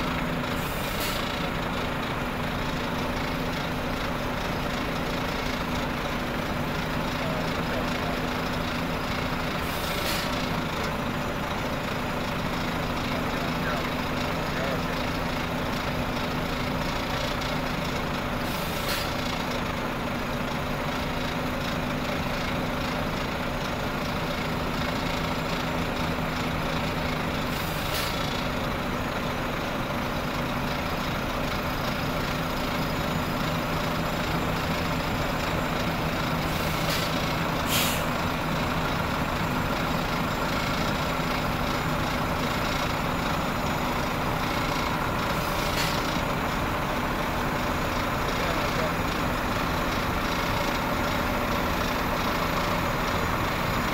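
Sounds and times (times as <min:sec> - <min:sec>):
diesel engine running: 0:00.0 - 0:53.9
rumble of trailer wheels: 0:00.0 - 0:53.9
air brake hisses: 0:00.6 - 0:01.4, 0:09.6 - 0:10.4, 0:18.4 - 0:19.2, 0:27.5 - 0:28.2, 0:36.5 - 0:38.2.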